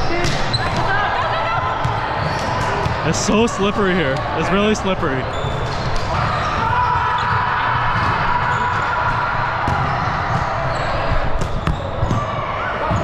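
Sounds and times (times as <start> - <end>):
shoes on gym court: 0.0 - 4.6.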